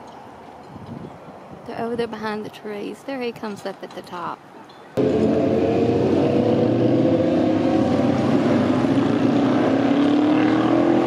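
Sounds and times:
loud motor engine running: 5.0s - 11.0s.

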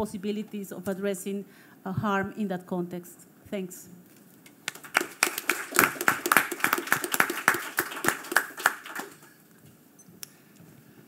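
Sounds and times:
audience applauding: 4.6s - 9.4s.

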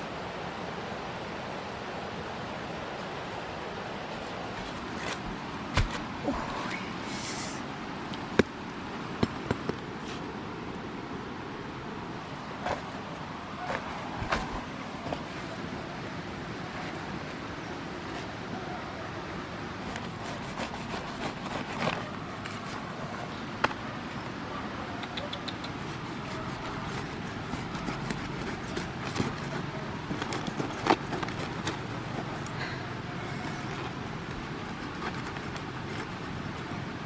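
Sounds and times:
steady background hiss: 0.0s - 37.0s
knife slicing fruit rind: 25.7s - 32.4s.

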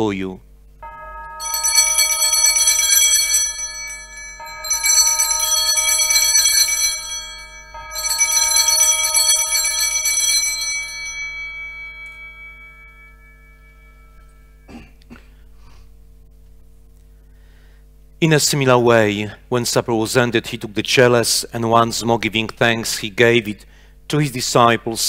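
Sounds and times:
altar bells ringing: 0.8s - 14.8s.

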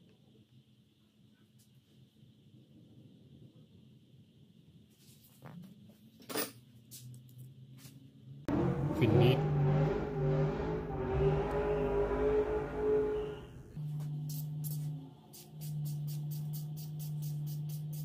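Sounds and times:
car engine revving hard: 8.5s - 13.8s.

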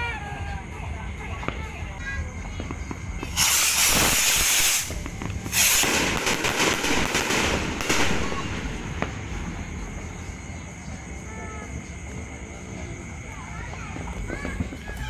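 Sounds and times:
sharp firework pops: 2.4s - 9.9s
rocket hiss: 2.6s - 10.4s.

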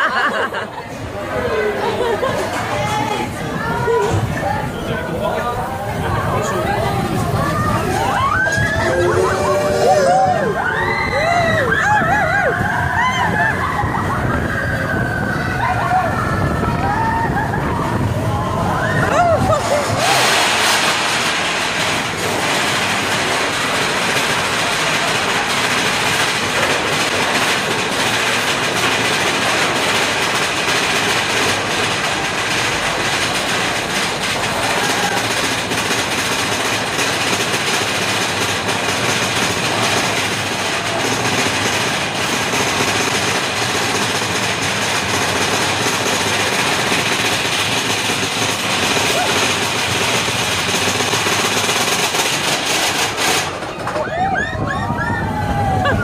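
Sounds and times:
roller coaster wheels rumbling on rails: 0.0s - 56.0s.

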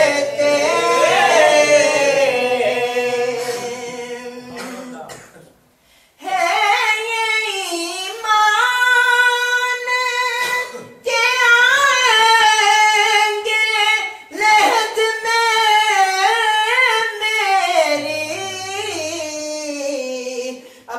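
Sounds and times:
man singing unaccompanied: 14.4s - 20.6s.

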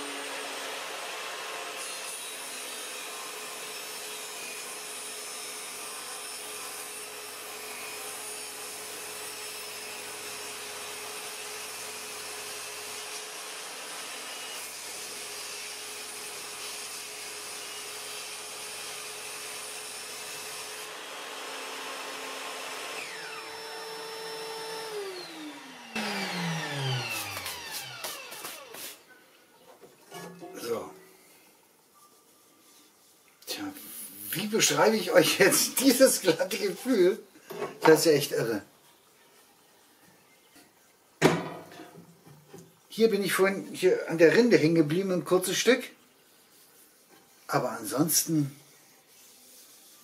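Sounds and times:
table saw cutting wood: 0.0s - 29.1s
saw motor winding down: 20.8s - 28.9s.

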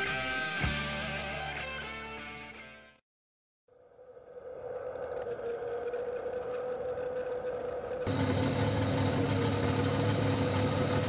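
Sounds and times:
truck engine idling: 5.9s - 11.0s.

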